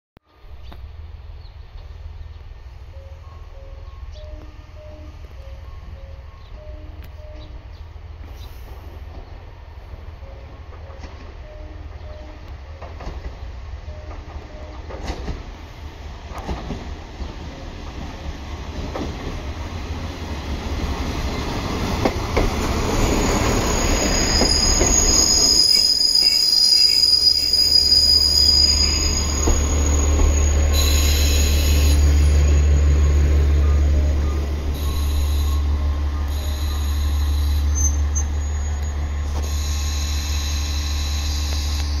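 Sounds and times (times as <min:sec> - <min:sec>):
train wheels knocking on rail joints: 0:16.3 - 0:19.6, 0:21.6 - 0:22.9
brakes squealing: 0:21.4 - 0:42.0
diesel engine humming: 0:28.8 - 0:42.0.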